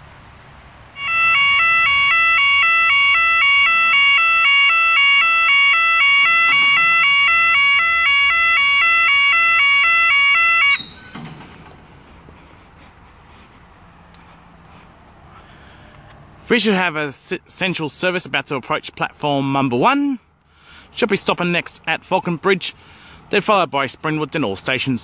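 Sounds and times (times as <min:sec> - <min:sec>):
level crossing two-tone alarm: 0:01.0 - 0:11.2.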